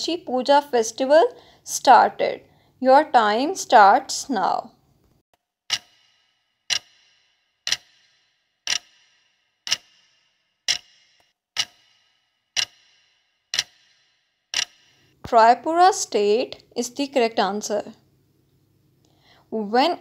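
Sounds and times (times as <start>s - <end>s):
clock ticking countdown timer: 5.7s - 15.2s.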